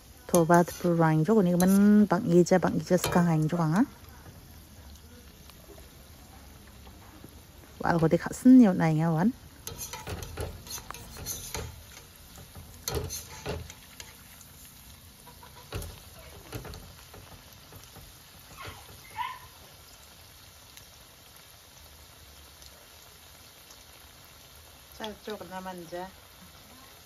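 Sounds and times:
food deep-frying in oil: 0.0s - 27.0s
metal skimmer scraping pan: 0.3s - 3.8s, 9.1s - 19.1s.

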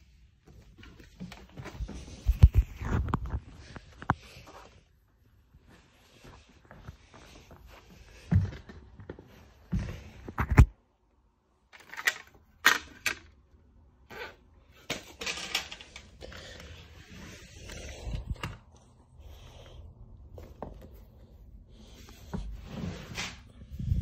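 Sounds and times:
rustling and soft scuffs: 0.0s - 10.4s, 16.8s - 24.0s.

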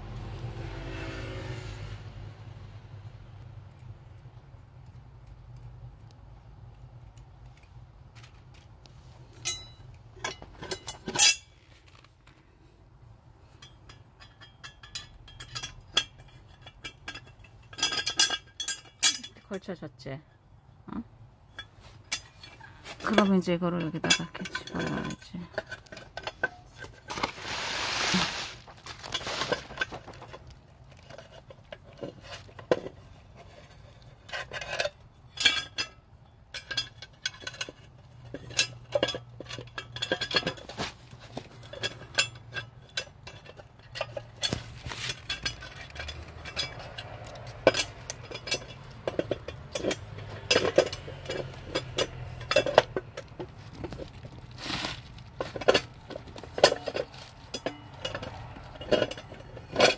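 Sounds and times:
metallic clinks of cast iron parts: 7.1s - 11.6s, 13.4s - 20.8s, 21.4s - 27.3s, 28.8s - 59.9s
plastic rustle: 26.9s - 31.0s, 53.5s - 57.5s.

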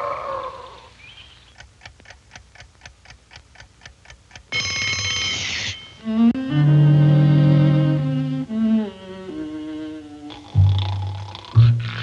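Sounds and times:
alarm clock ticking: 1.5s - 6.5s
alarm clock bell ringing: 4.5s - 6.2s.

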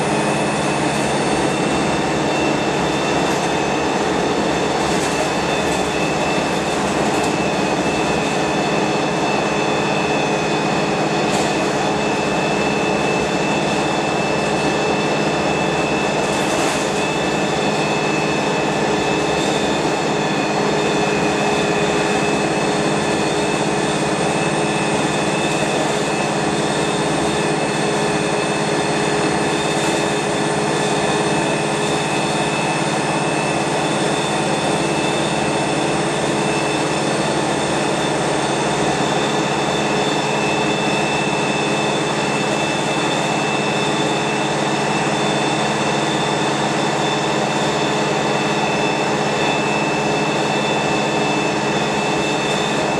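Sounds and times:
bus engine drone: 0.0s - 52.9s.

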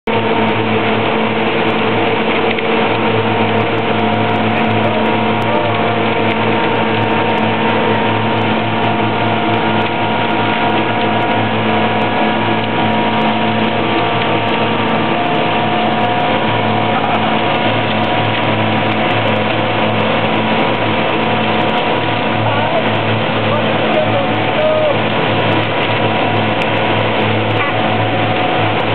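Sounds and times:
concrete truck engine running: 0.0s - 28.9s
wet concrete rushing: 0.1s - 28.9s.

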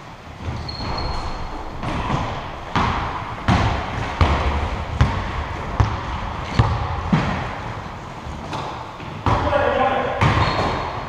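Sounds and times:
basketball dribbling on hard floor: 2.7s - 7.4s.

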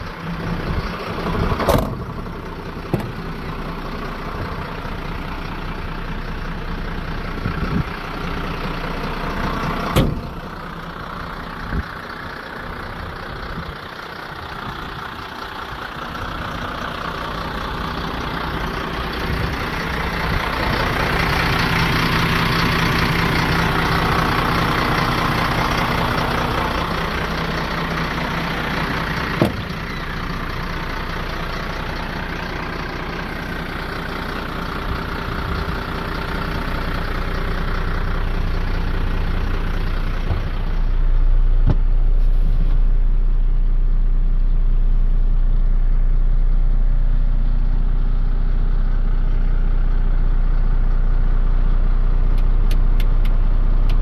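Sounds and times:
diesel engine idling: 0.0s - 54.0s.

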